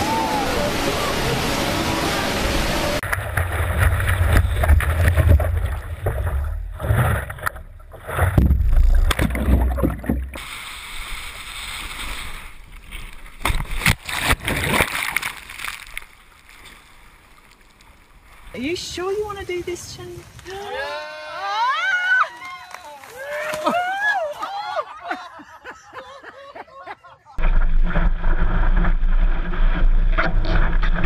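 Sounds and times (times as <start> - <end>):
water rushing: 0.0 - 20.6
water splashes: 0.0 - 20.7.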